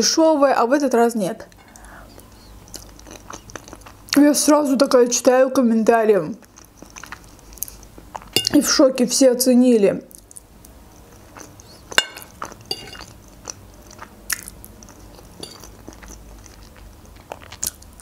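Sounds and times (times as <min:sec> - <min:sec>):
person chewing food: 0:01.6 - 0:04.2, 0:06.4 - 0:08.6, 0:10.1 - 0:18.0.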